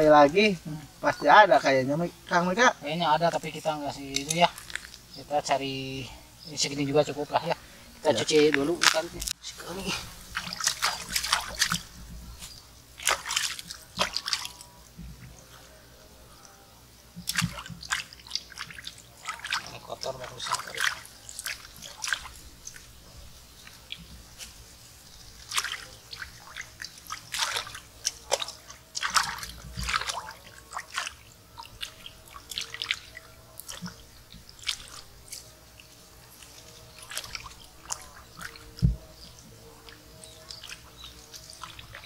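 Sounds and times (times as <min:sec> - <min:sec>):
water dripping: 0:00.0 - 0:15.5, 0:16.3 - 0:42.0
hands splashing in water: 0:09.9 - 0:12.0, 0:13.0 - 0:14.7, 0:17.2 - 0:22.9, 0:25.3 - 0:42.0.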